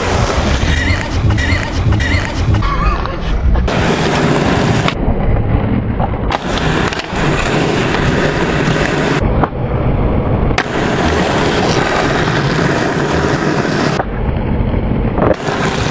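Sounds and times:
skateboard wheels rolling on asphalt: 0:00.0 - 0:01.1, 0:03.6 - 0:15.9
skateboard tail clacks: 0:06.0 - 0:09.6.

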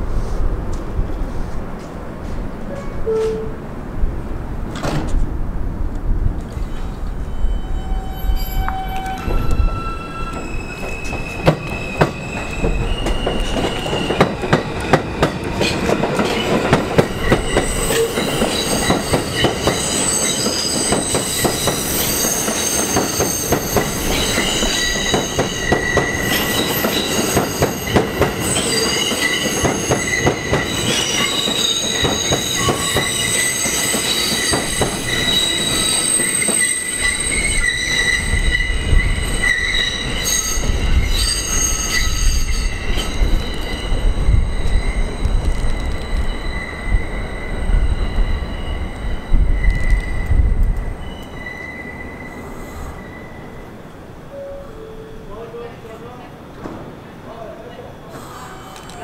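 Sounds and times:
train wheels squealing: 0:06.6 - 0:53.7, 0:58.0 - 0:59.0.

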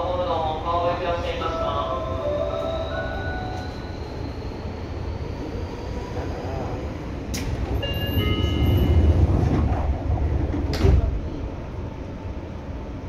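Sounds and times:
train wheel and rail rumble: 0:00.0 - 0:13.0.

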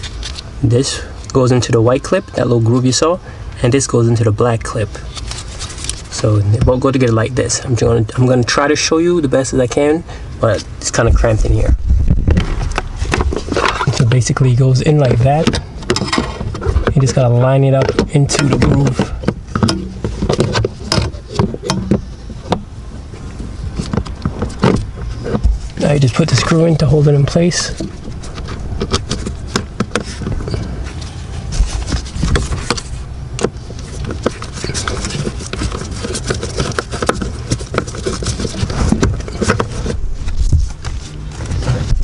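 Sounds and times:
low steady hum: 0:00.0 - 0:42.0
screwdriver clicking and scraping plastic: 0:27.8 - 0:30.6, 0:31.9 - 0:40.0.

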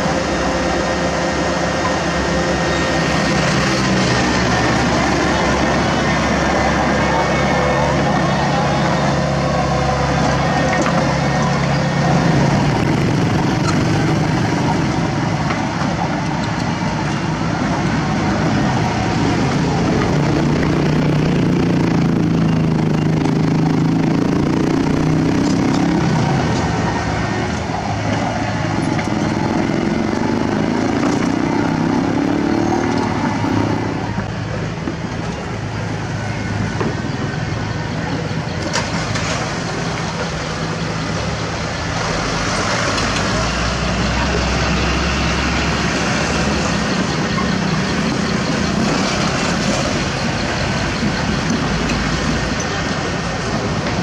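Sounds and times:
bulldozer diesel engine working: 0:00.0 - 0:54.0
diesel dump trucks running: 0:00.0 - 0:54.0.

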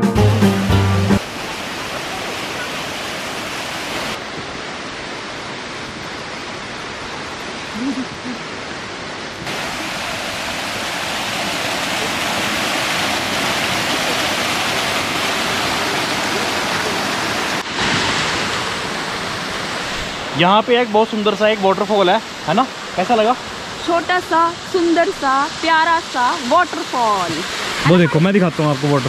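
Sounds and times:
waterfall splashing over rocks: 0:00.7 - 0:29.0.

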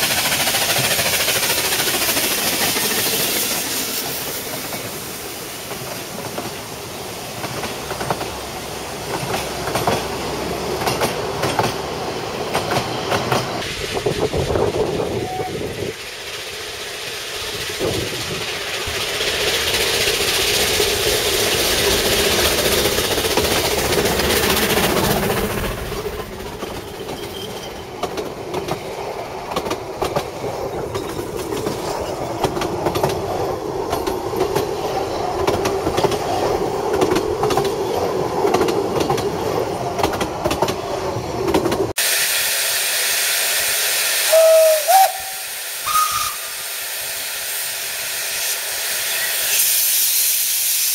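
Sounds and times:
steam hiss: 0:00.0 - 0:37.4, 0:41.8 - 0:50.9
steam locomotives passing: 0:00.0 - 0:50.9
wheels clacking over rail joints: 0:09.0 - 0:41.9
train whistle: 0:15.1 - 0:15.8, 0:43.3 - 0:46.8.

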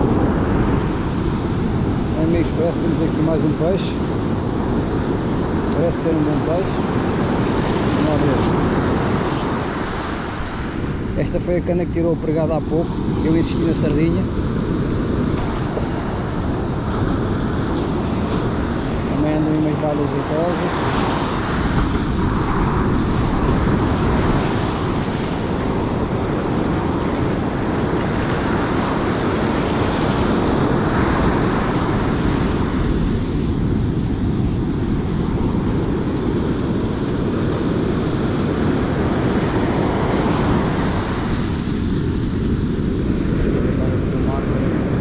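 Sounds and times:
surf rushing: 0:00.0 - 0:45.0
wind buffeting microphone: 0:00.0 - 0:45.0.

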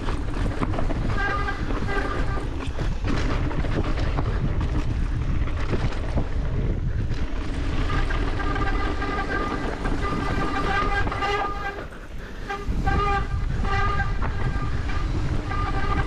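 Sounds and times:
bike rattles and knocks: 0:00.0 - 0:16.0
wind buffeting microphone: 0:00.0 - 0:16.0
steady pitched buzz: 0:07.6 - 0:16.0.

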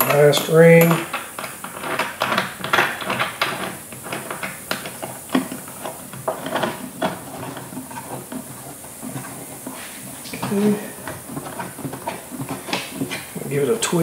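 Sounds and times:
small clicks and scrapes of fitting: 0:01.1 - 0:13.4.

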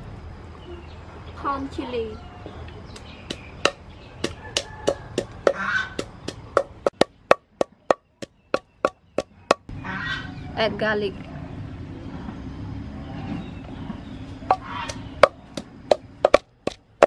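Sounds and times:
wooden pestle pounding in mortar: 0:03.0 - 0:09.7, 0:14.5 - 0:17.0.

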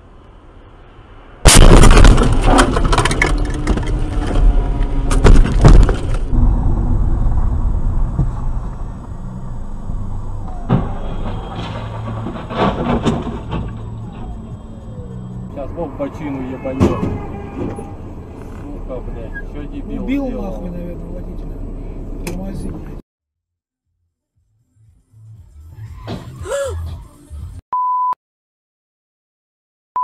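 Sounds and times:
road noise: 0:00.0 - 0:23.0, 0:24.4 - 0:27.6
sharp crash knocks: 0:01.4 - 0:03.2, 0:05.0 - 0:09.0
loud car crash impact: 0:01.4 - 0:03.9, 0:05.0 - 0:09.0, 0:10.4 - 0:14.3
crumpling bodywork and debris clattering: 0:10.9 - 0:13.9.

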